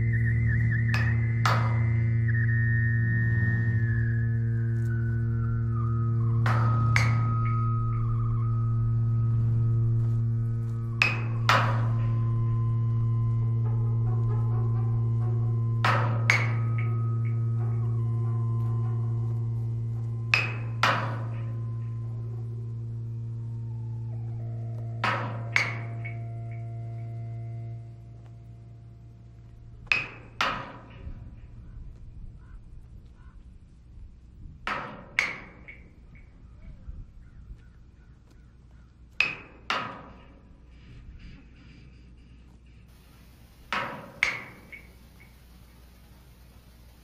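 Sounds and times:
low drone with held tones: 0:00.0 - 0:34.0
mallet striking metal dumpster: 0:00.9 - 0:02.0, 0:06.4 - 0:07.7, 0:11.0 - 0:12.9, 0:13.6 - 0:22.3, 0:25.0 - 0:26.6, 0:29.9 - 0:31.0, 0:43.7 - 0:45.3.

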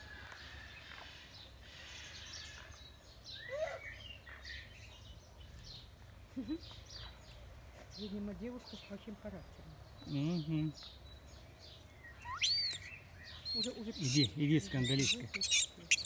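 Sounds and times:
small birds chirping: 0:00.0 - 0:16.0
monkey shrill cry: 0:12.2 - 0:16.0.

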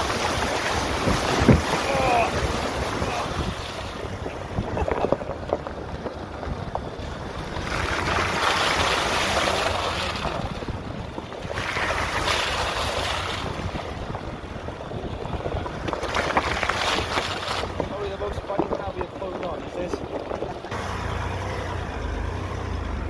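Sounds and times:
stones crackling under tyre: 0:00.0 - 0:20.8
wind buffeting microphone: 0:00.0 - 0:21.2
tyres rolling on gravel: 0:00.0 - 0:23.0.

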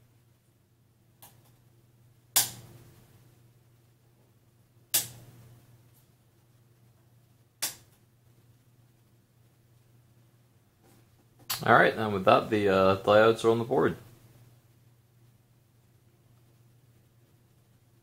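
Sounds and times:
wire cutters snipping: 0:02.4 - 0:02.6.

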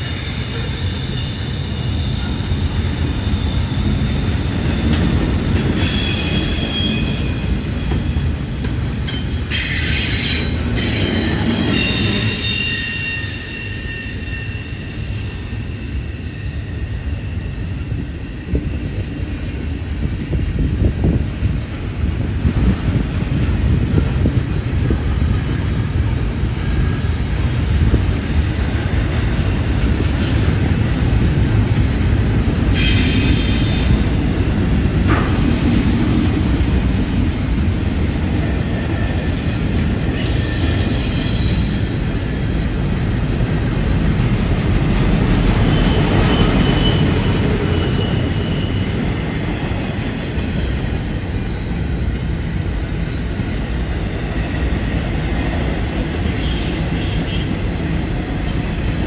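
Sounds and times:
steel wheels rumbling on rail: 0:00.0 - 0:59.0
high-pitched wheel squeals: 0:05.8 - 0:18.7, 0:40.1 - 0:44.7, 0:45.6 - 0:49.1, 0:56.2 - 0:59.0.

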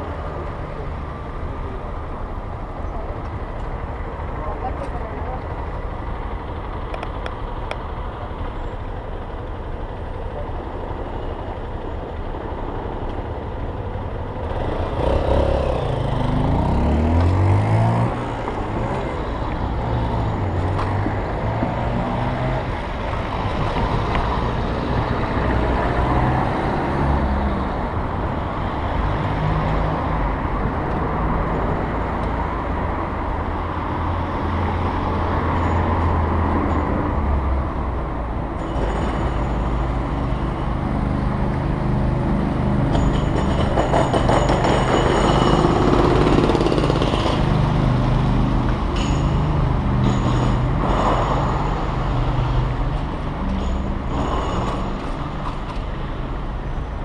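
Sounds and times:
street traffic: 0:00.0 - 0:57.0
vehicle engine revving: 0:14.4 - 0:22.8.

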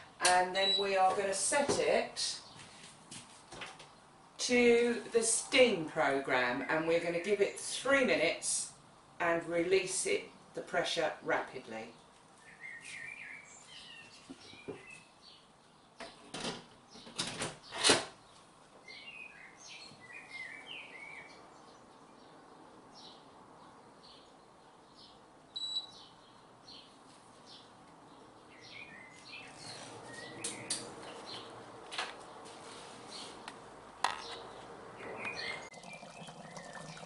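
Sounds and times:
electronic beep: 0:00.6 - 0:00.9, 0:25.6 - 0:25.9
small birds chirping: 0:11.9 - 0:16.3, 0:18.2 - 0:31.6, 0:34.2 - 0:37.0.

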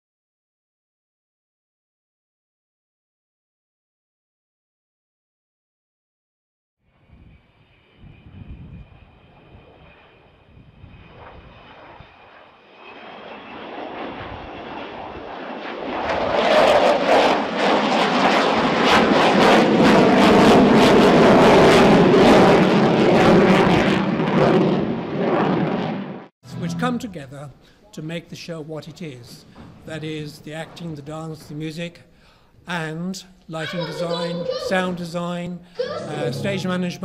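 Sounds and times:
high jet whine: 0:06.9 - 0:27.3, 0:35.8 - 0:37.0
jet engines rumbling: 0:07.0 - 0:27.6, 0:33.6 - 0:37.0.

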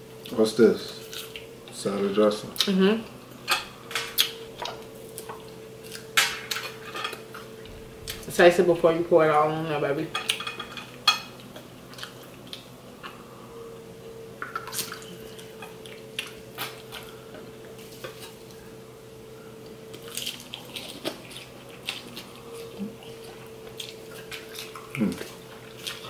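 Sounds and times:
faint steady hum: 0:00.0 - 0:26.0
wet chewing sounds: 0:01.0 - 0:01.8, 0:11.4 - 0:13.2, 0:14.4 - 0:18.6, 0:19.6 - 0:26.0
forks scraping on plates: 0:06.2 - 0:07.5, 0:10.1 - 0:11.4.

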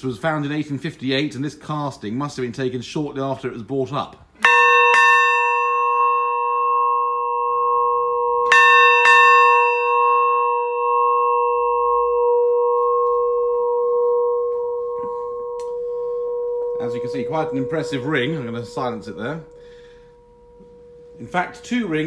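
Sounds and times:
large ship's bell ringing: 0:04.4 - 0:22.0.

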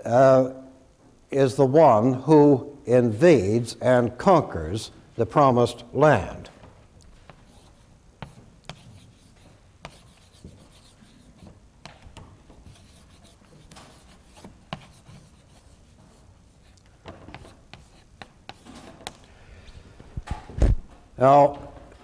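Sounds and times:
chalk scratching on blackboard: 0:07.3 - 0:11.6, 0:12.5 - 0:18.8
chalk tapping on board: 0:07.3 - 0:19.2.

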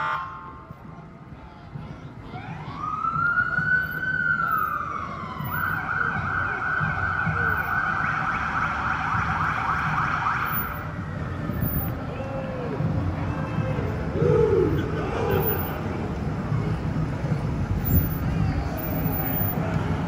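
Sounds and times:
emergency siren wail: 0:02.3 - 0:11.9
siren rapid yelp: 0:02.4 - 0:10.9.

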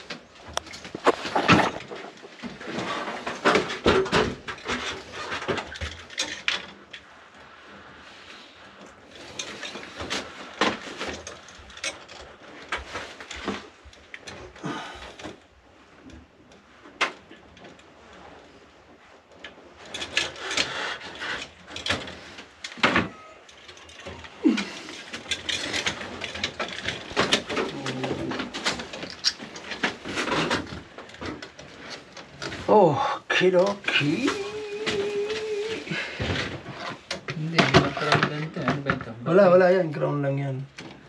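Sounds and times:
hand tools clicking and scraping: 0:00.0 - 0:07.1, 0:19.4 - 0:32.7, 0:33.5 - 0:38.9.

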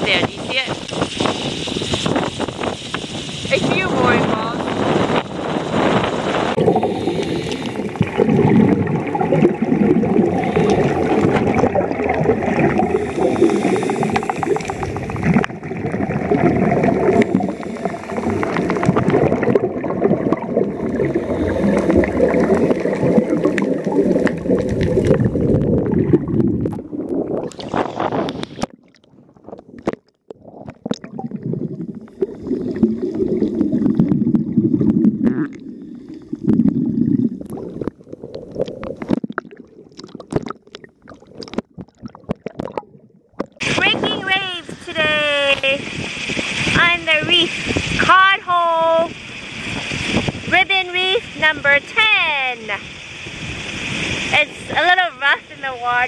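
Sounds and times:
wind buffeting microphone: 0:00.0 - 0:28.7, 0:43.6 - 0:48.2, 0:48.8 - 0:56.0
choppy water sloshing: 0:00.0 - 0:56.0.

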